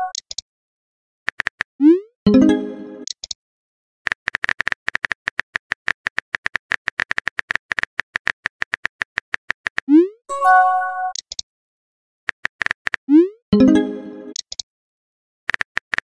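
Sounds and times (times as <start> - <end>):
keyboard typing clicks: 11.1 - 11.4, 13.6 - 14.6.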